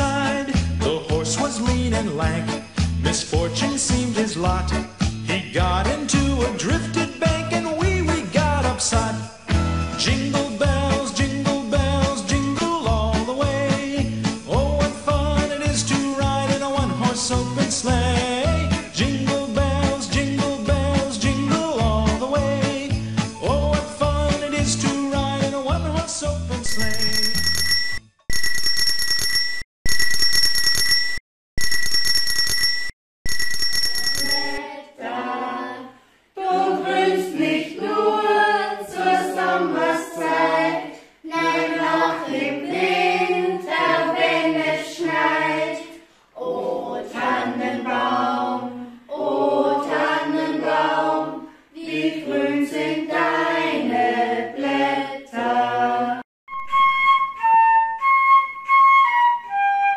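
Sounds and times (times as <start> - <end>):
small bell ringing: 26.7 - 34.6
women and girls singing: 34.2 - 56.2
flute melody: 56.5 - 59.9.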